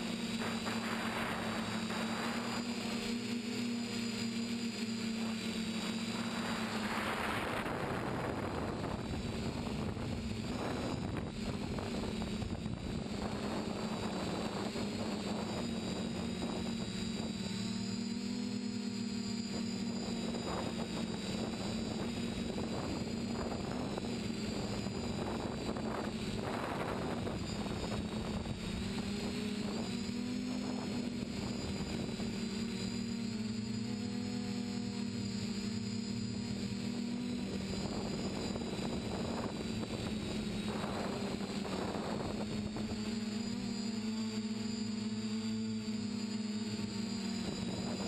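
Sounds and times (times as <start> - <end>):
quadcopter motors whining: 0.0 - 48.0
wind noise on microphone: 5.8 - 17.7, 19.5 - 32.4, 36.4 - 43.6.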